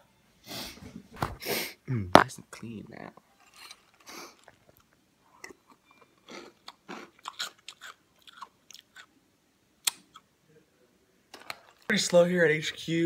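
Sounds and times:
person chewing food: 3.4 - 9.1.

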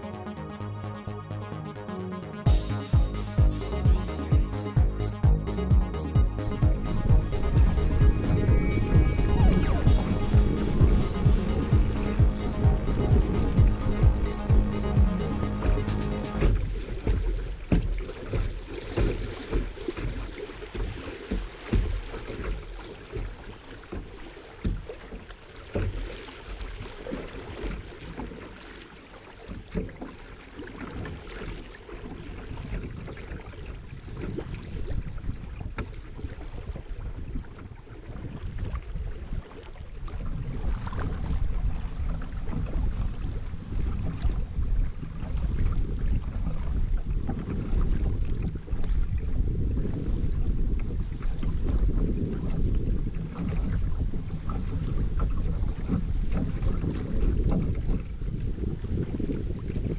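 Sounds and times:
river water rippling and splashing: 2.1 - 59.9
low rumble on microphone: 2.5 - 17.9, 32.5 - 59.9.

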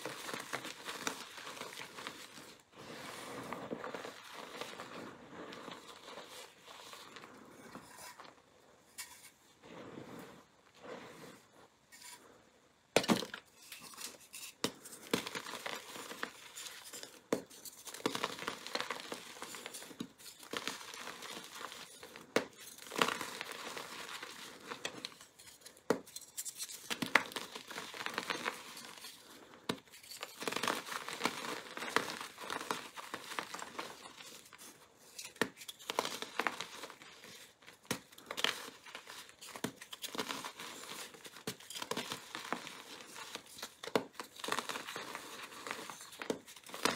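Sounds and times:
chalk block crunching: 0.0 - 8.4, 13.0 - 46.9.

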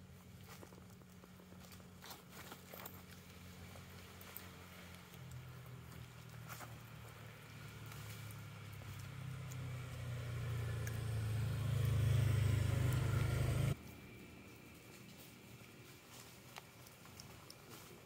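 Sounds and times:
vehicle engine humming: 0.0 - 18.0.

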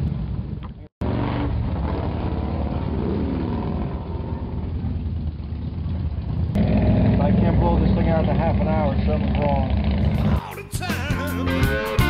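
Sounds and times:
motorcycle engine idling: 2.8 - 10.4.

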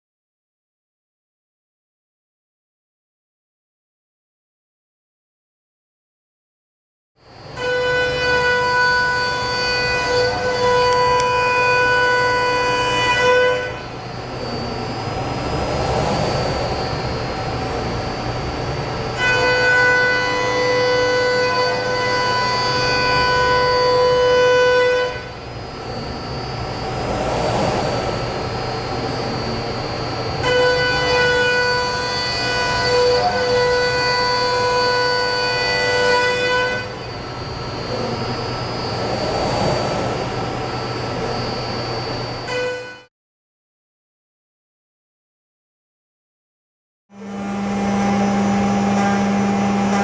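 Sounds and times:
router spindle whining: 7.3 - 42.7, 47.2 - 50.0.

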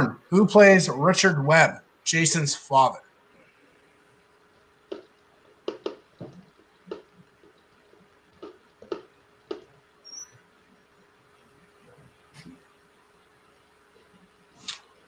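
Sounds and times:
faint steady hum: 0.0 - 15.0
marker scratching on board: 5.7 - 7.1.

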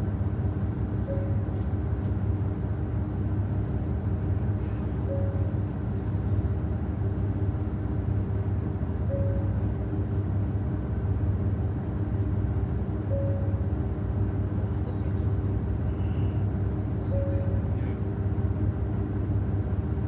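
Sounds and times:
diesel railcar engine drone: 0.0 - 20.0
short faint tone: 17.0 - 17.9.

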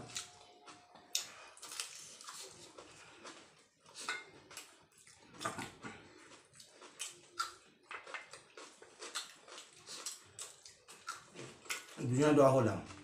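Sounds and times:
chewing and crunching: 0.0 - 13.0.

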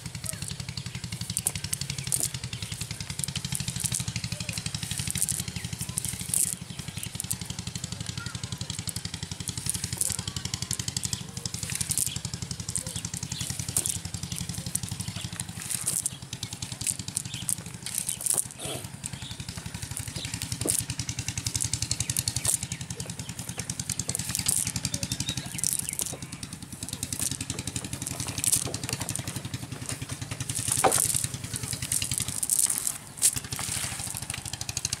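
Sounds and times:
small engine running: 0.0 - 35.0
wet cast net rustling: 0.0 - 35.0.

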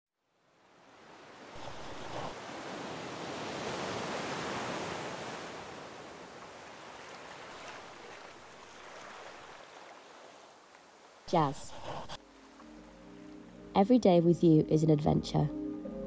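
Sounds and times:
sea surf washing over shore: 0.7 - 11.4.

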